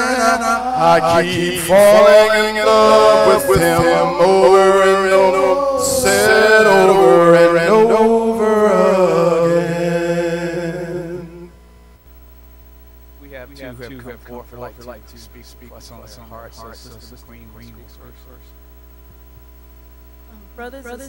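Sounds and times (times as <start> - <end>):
men singing a gospel song: 0.0 - 11.5, 13.6 - 15.0.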